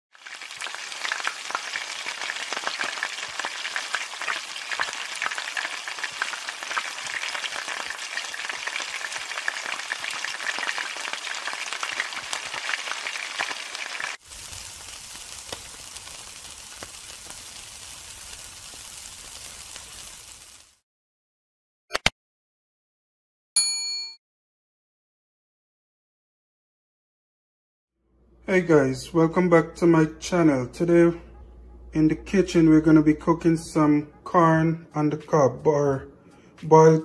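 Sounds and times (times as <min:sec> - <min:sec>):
food frying in hot oil: 0:00.1 - 0:20.8
meat sizzling on a grill: 0:00.1 - 0:20.8.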